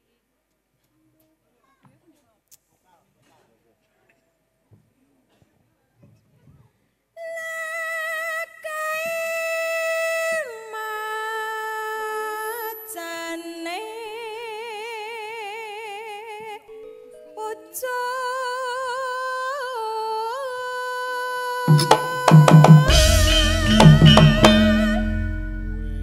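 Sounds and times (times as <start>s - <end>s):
woman singing solo: 17.4s - 25.2s
drum strokes: 21.7s - 25.8s.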